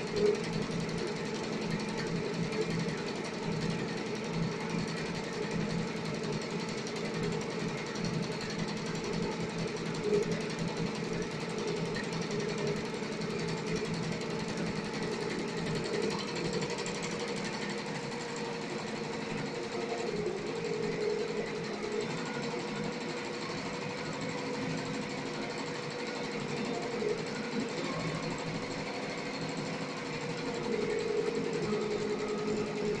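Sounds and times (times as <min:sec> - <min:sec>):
machine hum: 0:07.0 - 0:33.0.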